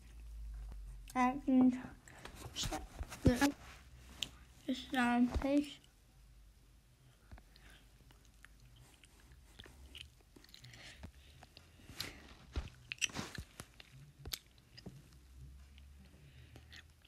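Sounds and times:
person chewing gum: 7.2 - 17.0.

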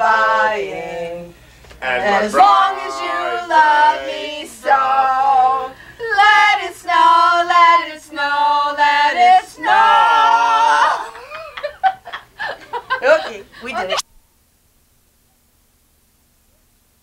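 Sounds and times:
group singing unaccompanied: 0.0 - 11.4.

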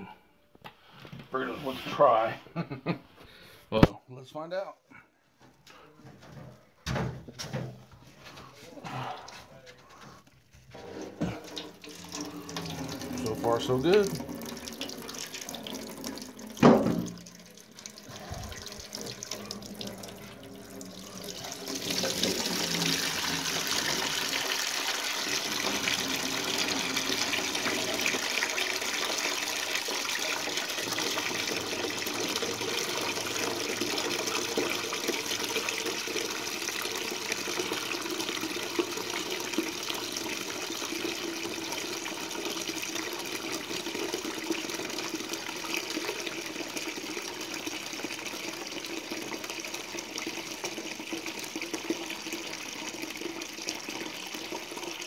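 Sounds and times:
water draining into plastic bag: 10.7 - 47.8.

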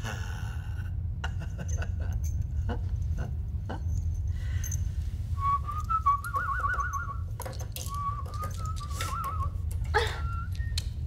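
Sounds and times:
steady low rumble: 0.0 - 11.0
person whistling a tune: 5.4 - 11.0.

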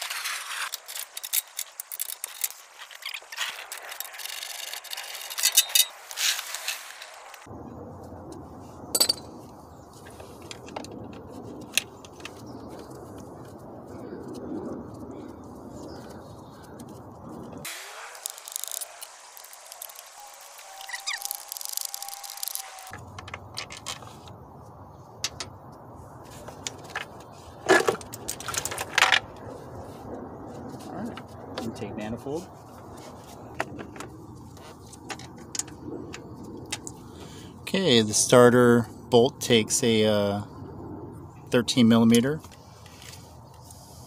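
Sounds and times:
metal parts clattering: 0.4 - 7.2, 9.0 - 9.2
metal hand tools clinking: 3.4 - 7.0, 9.0 - 9.3.

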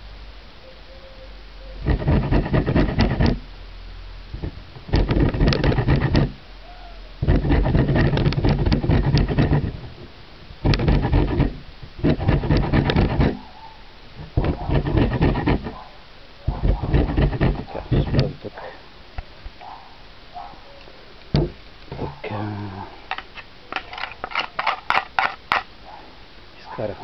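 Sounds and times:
rind rasping on grater: 1.8 - 3.4, 4.4 - 6.4, 7.2 - 9.8, 10.7 - 13.4, 14.5 - 15.8, 16.9 - 18.2.

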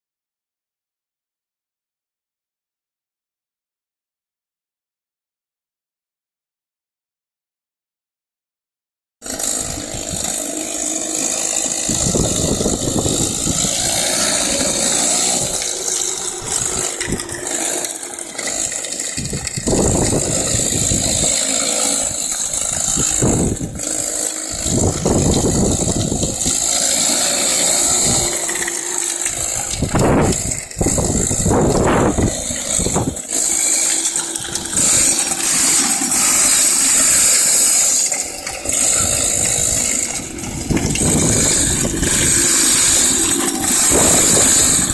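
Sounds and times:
go-kart engine revving: 9.2 - 44.9.

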